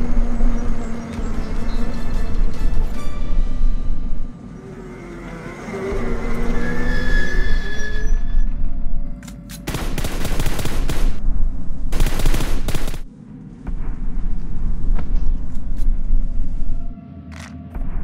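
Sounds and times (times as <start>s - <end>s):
rapid automatic gunfire: 9.7s - 11.2s, 11.9s - 13.1s.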